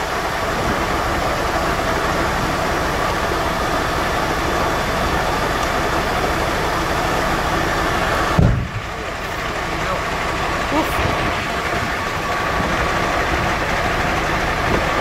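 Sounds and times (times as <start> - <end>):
truck engine running: 0.0 - 15.0
low thump: 8.4 - 8.8.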